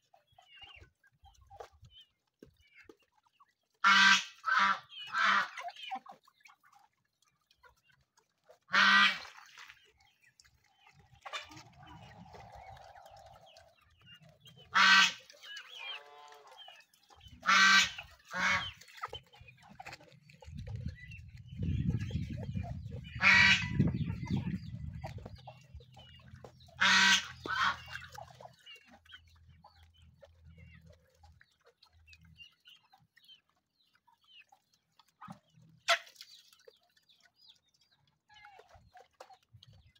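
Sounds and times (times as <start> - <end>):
chickens clucking and chirping: 0.0 - 39.9
ducks quacking: 3.8 - 6.9, 8.5 - 31.7, 35.2 - 36.5.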